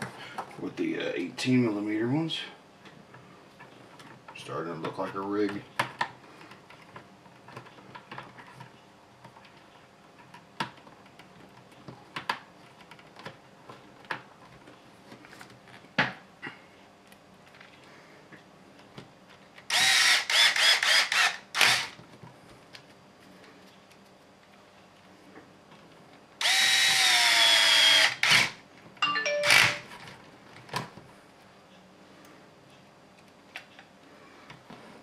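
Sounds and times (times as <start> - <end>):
small parts and screws clicking: 19.6 - 22.0, 26.4 - 28.5
cordless drill driving screw: 19.7 - 22.0, 26.4 - 28.6.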